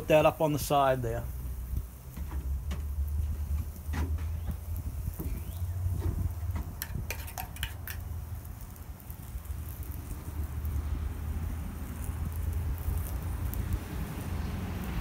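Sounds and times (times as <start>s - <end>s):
metal spoon scraping ceramic bowl: 7.1s - 8.0s.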